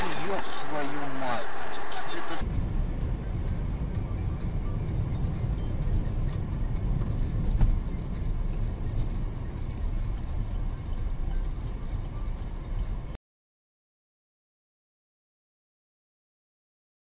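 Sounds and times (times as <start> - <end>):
moving car rumble: 0.0 - 13.2.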